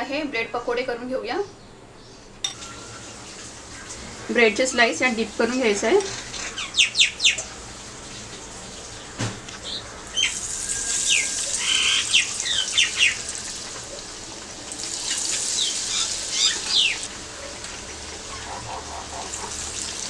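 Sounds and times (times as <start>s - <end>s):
food sizzling in hot oil: 2.5s - 20.0s
bird chirping: 6.1s - 7.4s, 9.0s - 13.3s, 15.1s - 17.1s.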